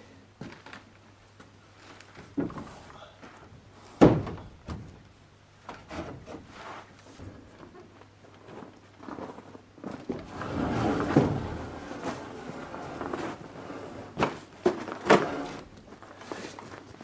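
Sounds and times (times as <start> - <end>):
wooden boards scraping: 9.1 - 16.5.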